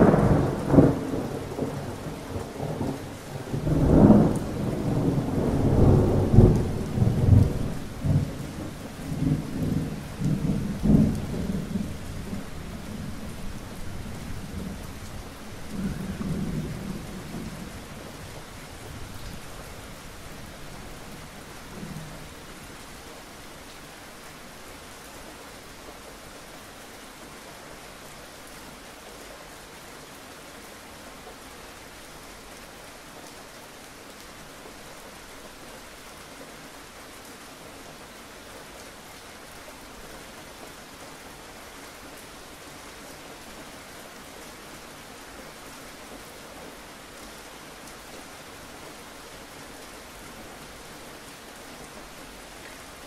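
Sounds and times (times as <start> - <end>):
thunder rumbling: 0.0 - 22.3
steady rain: 0.0 - 53.0.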